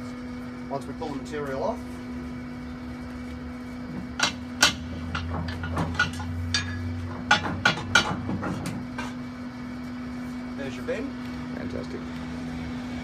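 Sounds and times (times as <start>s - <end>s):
steady hum: 0.0s - 13.0s
metal clanks and knocks: 4.0s - 9.2s.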